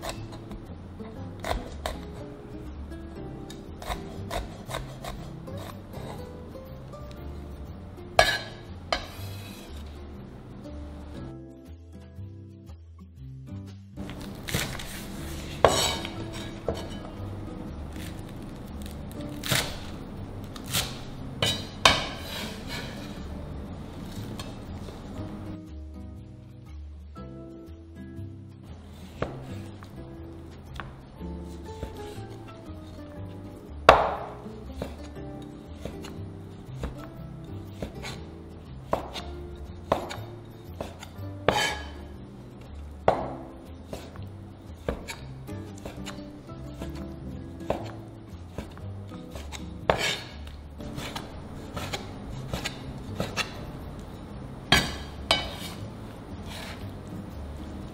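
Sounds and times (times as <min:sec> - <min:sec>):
soft background music: 0:00.0 - 0:57.9
cleaver chopping on wooden board: 0:03.5 - 0:06.2, 0:08.2 - 0:09.2, 0:14.1 - 0:15.0, 0:19.4 - 0:19.9, 0:20.6 - 0:23.0, 0:29.2 - 0:29.6, 0:33.9 - 0:35.1, 0:38.9 - 0:42.0, 0:43.0 - 0:44.2, 0:44.8 - 0:46.2, 0:47.6 - 0:53.6, 0:54.7 - 0:55.8
cleaver knocking on cutting board: 0:39.9 - 0:40.2, 0:43.1 - 0:43.4.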